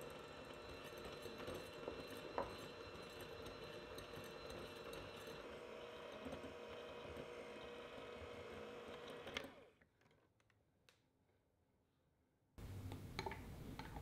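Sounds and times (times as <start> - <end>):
electric hand mixer running: 0.0 - 9.9.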